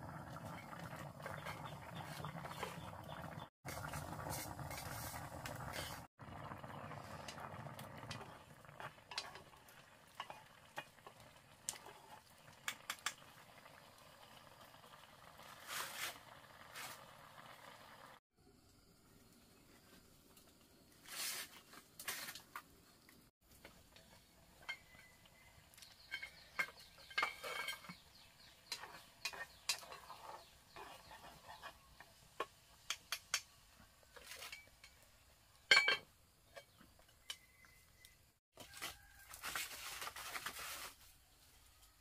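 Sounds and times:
rustling: 0:21.0 - 0:22.6, 0:38.6 - 0:41.5.

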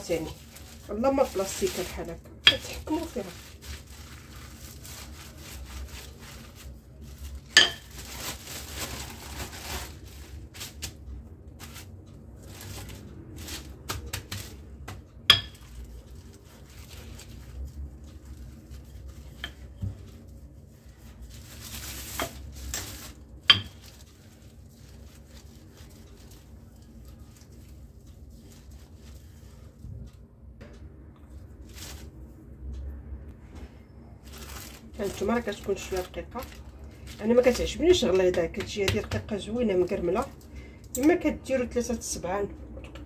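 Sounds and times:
plastic wrap rustling: 0:00.0 - 0:30.2, 0:31.3 - 0:32.4, 0:34.2 - 0:43.0
sharp knocks on countertop: 0:15.3 - 0:15.6.

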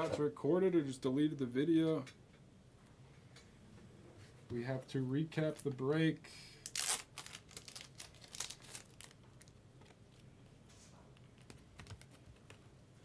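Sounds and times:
faint crinkling: 0:04.1 - 0:13.0.

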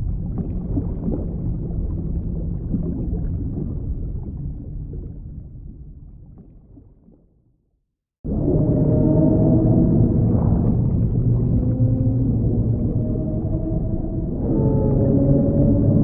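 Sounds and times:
low dense rumble: 0:08.3 - 0:16.0.

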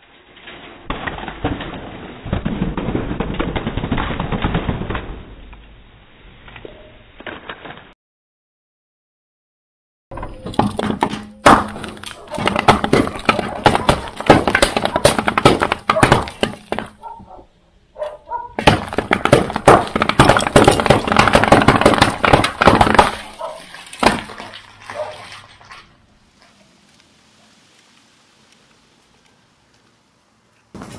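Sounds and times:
cans crushed under car tyre: 0:10.4 - 0:17.2, 0:18.6 - 0:25.8.

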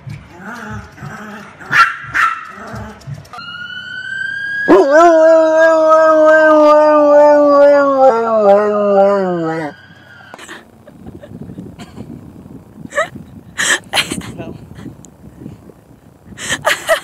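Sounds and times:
dog barking: 0:01.7 - 0:02.4
dog howling: 0:03.4 - 0:10.0.

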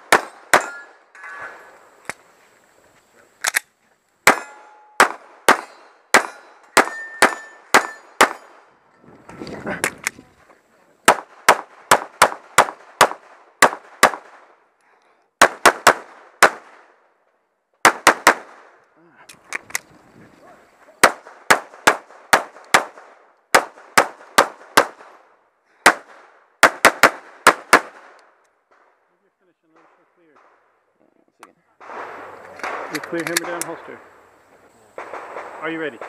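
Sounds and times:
pistol shots: 0:00.0 - 0:01.0, 0:04.2 - 0:08.7, 0:11.0 - 0:14.5, 0:15.4 - 0:16.9, 0:17.8 - 0:18.8, 0:21.0 - 0:25.2, 0:25.8 - 0:28.2, 0:35.0 - 0:36.0.

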